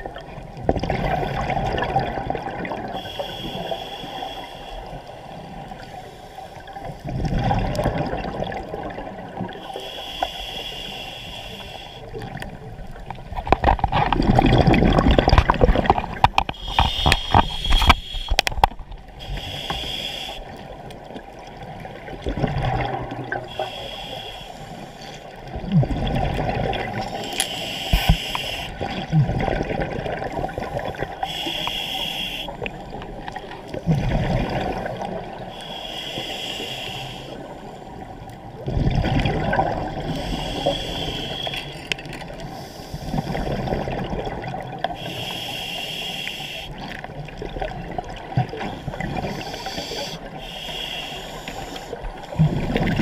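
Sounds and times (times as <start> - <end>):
exhaled bubbles gurgling: 0.0 - 6.0, 6.6 - 10.0, 10.9 - 35.8, 36.7 - 53.0
regulator inhalation hiss: 3.0 - 5.3, 9.6 - 12.1, 16.5 - 18.4, 19.2 - 20.6, 23.5 - 25.3, 27.2 - 28.8, 31.2 - 32.7, 35.5 - 37.8, 40.1 - 41.8, 42.5 - 43.4, 45.0 - 46.8, 48.7 - 52.0.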